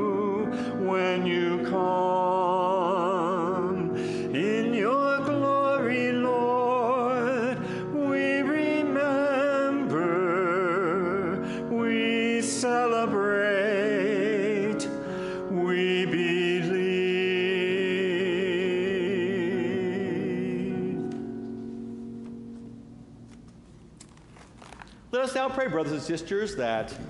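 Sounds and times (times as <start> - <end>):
solo voice singing hymn: 0.0 - 21.4.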